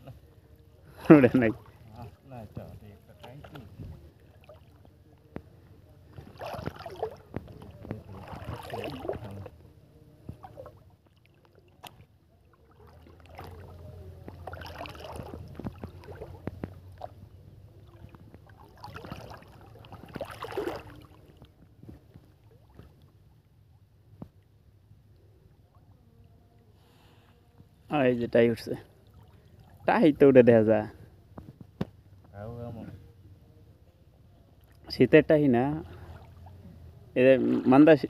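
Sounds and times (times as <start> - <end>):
water lapping softly: 0.0 - 38.0
water sloshing and splashing: 1.0 - 24.7, 28.6 - 30.0, 35.7 - 38.0.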